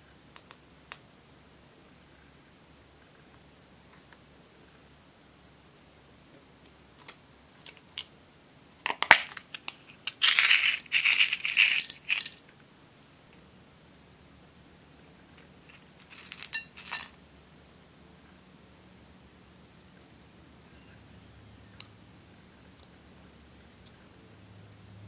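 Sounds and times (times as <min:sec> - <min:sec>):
beads clattering into glass bowl: 0:10.2 - 0:12.4, 0:15.4 - 0:17.2.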